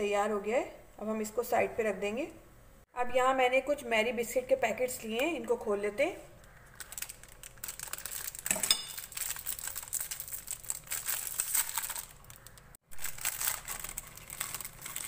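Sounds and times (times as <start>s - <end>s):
plastic packets crinkling and tearing: 6.4s - 15.0s.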